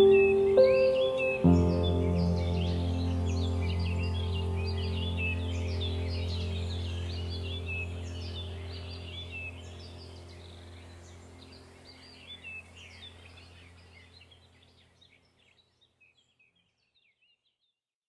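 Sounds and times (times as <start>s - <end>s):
small birds chirping: 0.0s - 17.8s
steady low hum: 1.5s - 14.6s.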